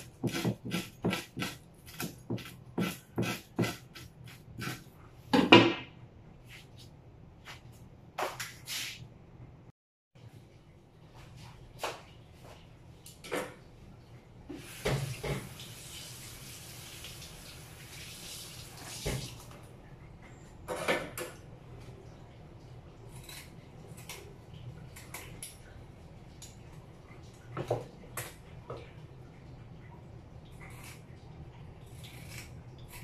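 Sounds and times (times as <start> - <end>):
kitchen tap running: 14.5 - 19.6.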